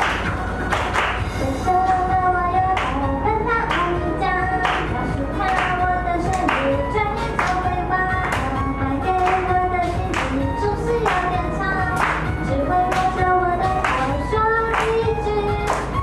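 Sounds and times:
sharp clap on the beat: 0.0 - 1.4, 2.8 - 3.0, 3.7 - 4.0, 4.6 - 6.7, 7.4 - 7.6, 8.2 - 8.6, 9.2 - 9.5, 10.1 - 10.4, 11.0 - 11.3, 11.9 - 13.2, 13.8 - 16.0
woman singing pop song: 1.3 - 16.0.

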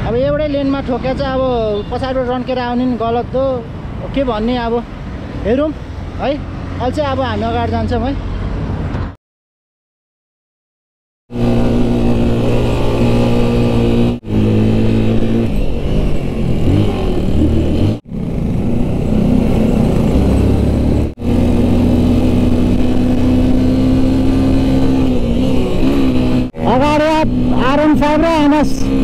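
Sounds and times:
motorcycle engine running: 11.3 - 29.0.

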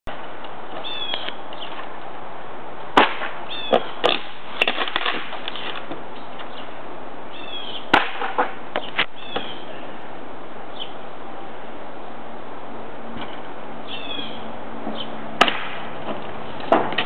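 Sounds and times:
shingles being ripped up: 4.0 - 5.9.

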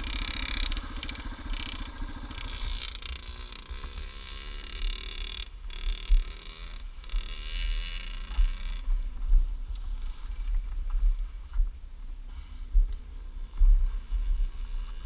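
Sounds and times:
high engine whine: 0.0 - 10.8
dirt bike engine running: 0.0 - 11.8, 12.9 - 15.0
wind buffeting microphone: 7.6 - 15.0.

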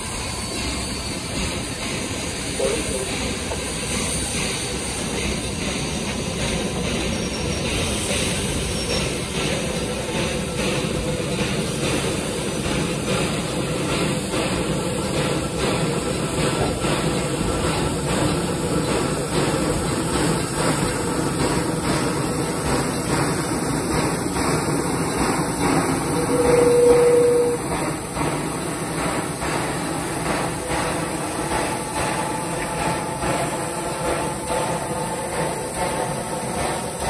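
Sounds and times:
train rumbling past: 0.0 - 37.0
short single tone: 26.3 - 27.6.

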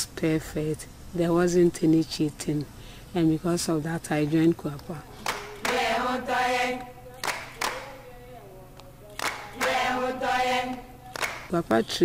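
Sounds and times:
hand claps: 5.2 - 6.0, 6.8 - 8.0, 8.8 - 10.0, 10.7 - 11.6
women singing without instruments: 5.2 - 12.0.

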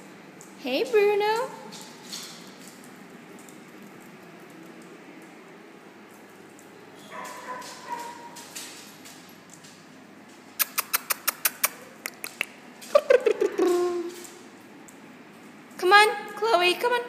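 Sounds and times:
dogs barking: 7.0 - 8.6
dogs yapping: 7.0 - 8.6.

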